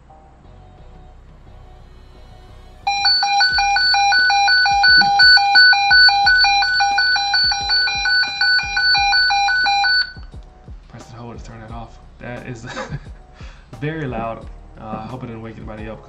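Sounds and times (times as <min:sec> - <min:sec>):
pulsing electronic beeping alarm: 0:02.9 - 0:10.3.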